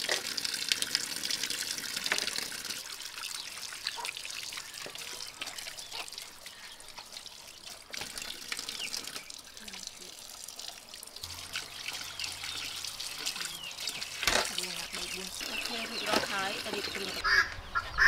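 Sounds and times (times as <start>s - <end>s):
tap water running into a sink: 0.0s - 17.2s
small knocks and splashes: 3.2s - 17.2s.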